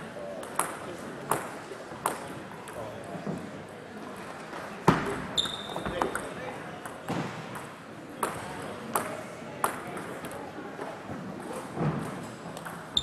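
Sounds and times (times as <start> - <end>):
table tennis ball bouncing: 0.4 - 2.9, 11.9 - 13.0.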